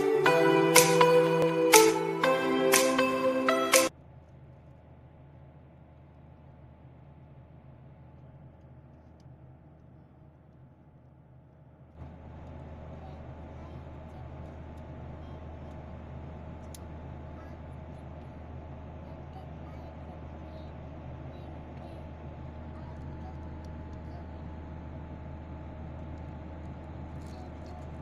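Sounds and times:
airliner cabin drone: 12.0 - 28.0.

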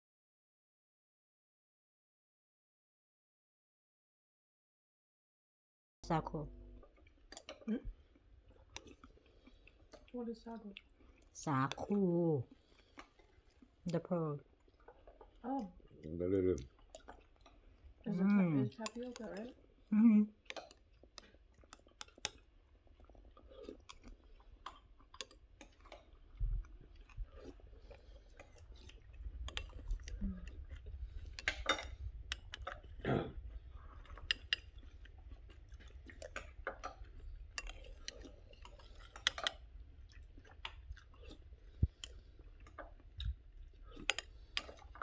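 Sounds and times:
person chewing wetly: 6.8 - 45.0
wet mouth clicks: 20.4 - 45.0.

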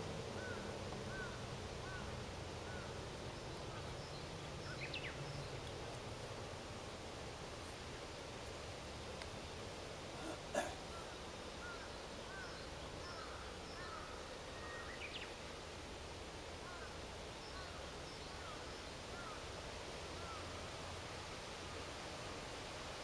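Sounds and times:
faint bird chirps: 0.4 - 5.7, 10.2 - 15.5.

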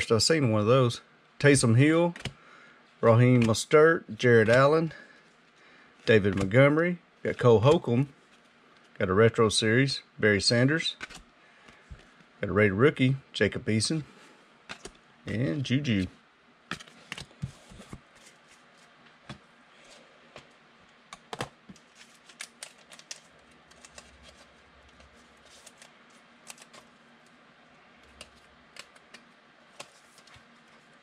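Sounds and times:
cards clicking and tapping: 2.1 - 2.4, 3.2 - 3.6, 6.0 - 6.6, 11.0 - 12.1, 14.7 - 15.4, 21.1 - 26.8, 28.0 - 30.4.

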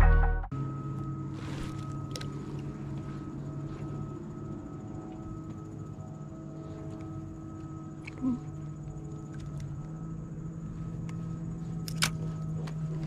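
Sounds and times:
electric trolling motor humming: 0.6 - 13.0.

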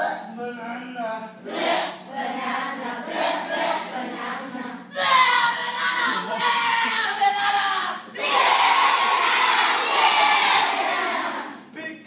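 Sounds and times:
children shouting together: 4.9 - 7.2
children calling out: 4.9 - 7.8.

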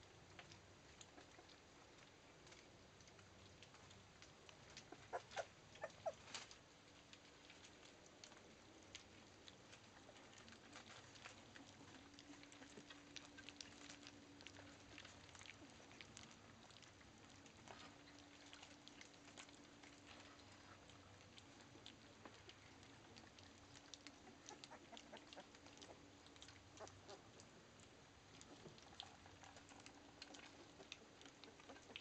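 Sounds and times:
puppies lapping food: 0.0 - 32.0
puppies squeaking and whimpering: 4.9 - 6.2.

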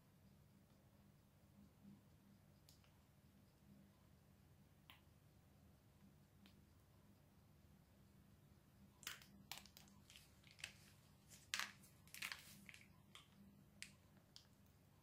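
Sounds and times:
low steady hum: 0.0 - 15.0
plastic pouch crinkling: 9.0 - 14.5.

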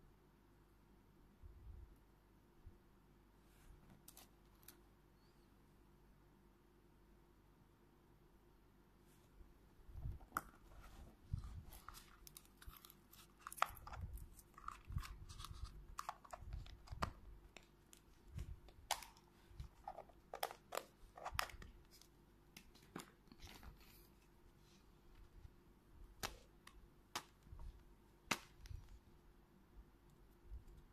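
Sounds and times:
crinkly plastic scrapes: 10.8 - 17.0.

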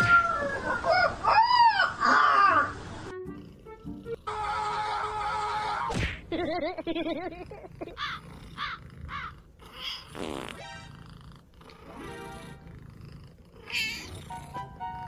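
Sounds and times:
music: 3.0 - 5.2, 14.2 - 15.0
cat meowing: 13.6 - 14.4.

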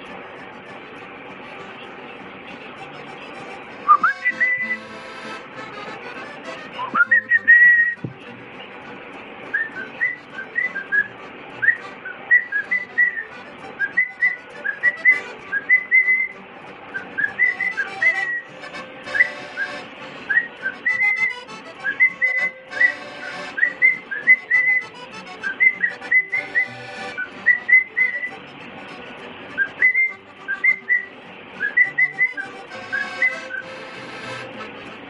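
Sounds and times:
cockatiel whistling: 3.9 - 4.9, 6.8 - 8.0, 9.5 - 16.3, 16.9 - 18.5, 19.1 - 21.2, 21.8 - 28.3, 29.6 - 33.7.

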